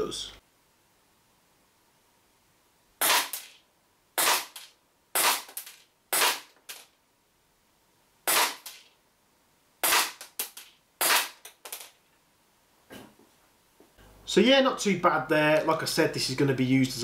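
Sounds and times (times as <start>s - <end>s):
airsoft pistol shots: 3.0s - 3.6s, 4.2s - 6.5s, 8.3s - 8.8s, 9.8s - 11.4s.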